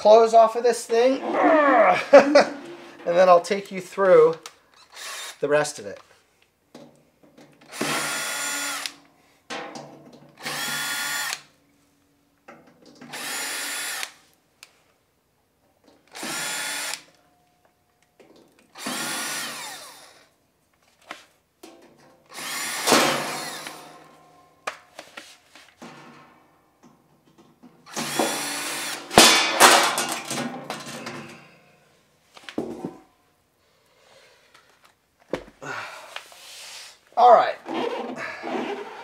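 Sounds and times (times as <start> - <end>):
cordless drill motor whine: 7.7 - 8.9, 10.4 - 11.4, 16.1 - 17.0, 18.8 - 20.3, 22.3 - 23.8.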